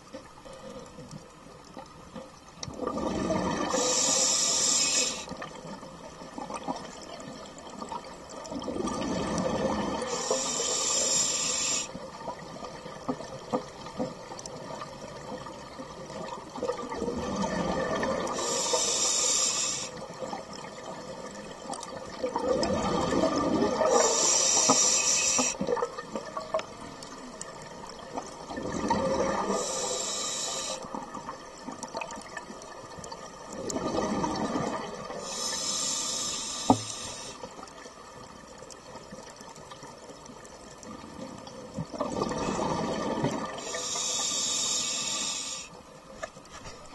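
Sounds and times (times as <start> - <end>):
exhaled bubbles underwater: 2.6 - 19.2, 19.8 - 45.5
regulator hiss: 3.7 - 5.4, 10.1 - 12.0, 18.3 - 20.0, 23.9 - 25.6, 29.5 - 30.9, 35.2 - 37.5, 43.6 - 45.8.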